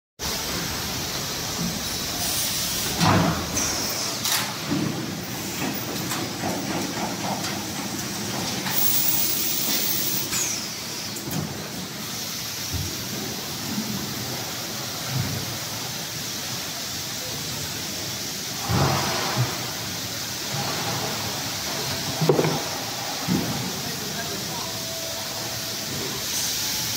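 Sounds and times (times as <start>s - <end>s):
compressed air hiss: 0.3s - 4.6s, 8.8s - 11.3s, 25.3s - 26.9s.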